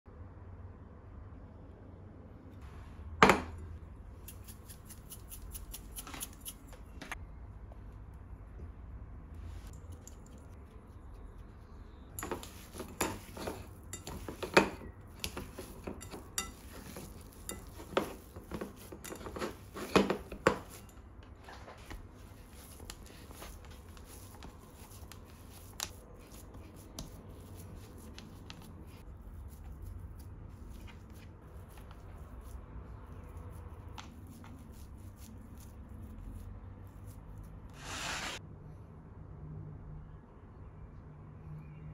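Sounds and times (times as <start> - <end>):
hands kneading minced meat: 9.5 - 20.9, 21.5 - 38.4
patting meat on wooden board: 12.2 - 20.9, 21.9 - 37.2.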